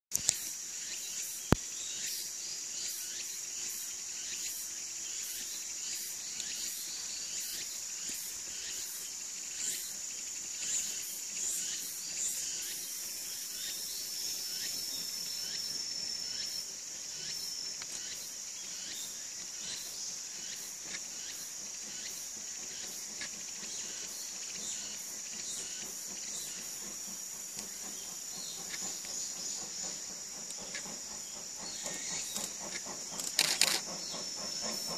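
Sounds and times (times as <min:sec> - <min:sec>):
insects trilling: 0:00.1 - 0:34.9
sharp click: 0:33.1 - 0:33.9.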